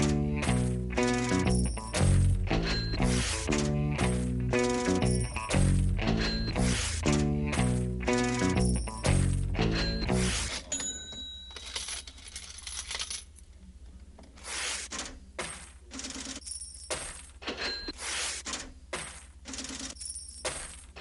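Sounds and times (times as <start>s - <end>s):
metallic clinks and jingles: 0.0s - 6.6s, 8.2s - 13.4s.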